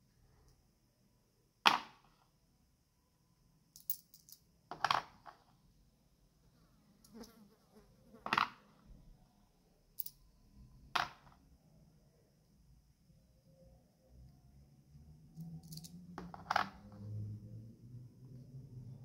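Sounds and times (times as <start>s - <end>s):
metal coins clicking: 3.8s - 4.4s, 10.0s - 10.2s, 15.6s - 16.0s.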